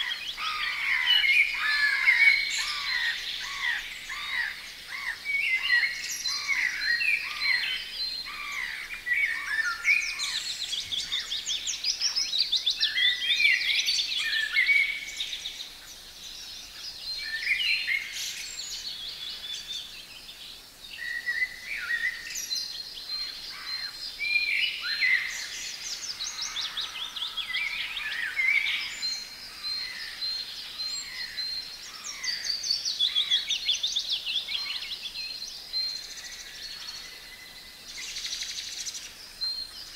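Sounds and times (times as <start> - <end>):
songbirds singing: 0.0 - 39.9.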